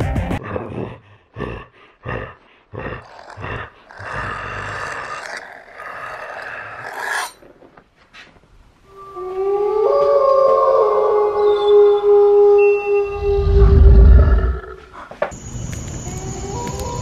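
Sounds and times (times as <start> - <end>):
snarling growls: 0.5 - 7.4, 13.4 - 14.9
long roar: 2.9 - 7.4, 13.0 - 14.9.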